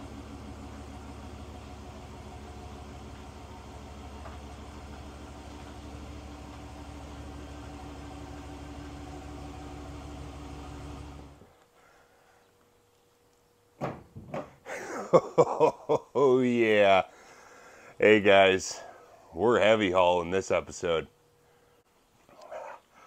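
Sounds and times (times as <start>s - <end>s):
pickup truck engine idling: 0.0s - 11.5s.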